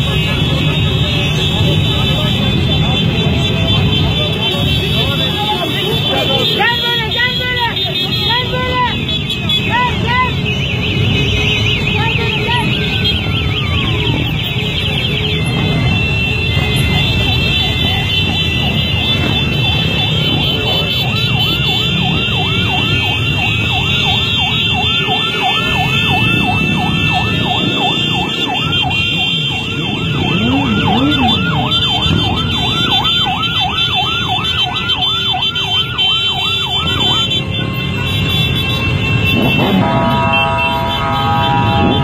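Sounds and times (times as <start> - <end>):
motorcycle engines running: 0.0 - 42.0
siren yelping fast: 12.0 - 15.1, 16.0 - 37.4
siren wail rising and falling: 12.4 - 37.4, 39.3 - 42.0.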